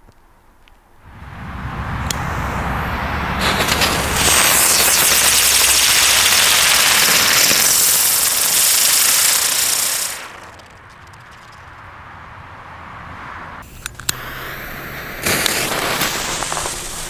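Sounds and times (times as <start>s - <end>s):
spinner firework hissing: 1.2s - 10.9s, 13.6s - 17.0s.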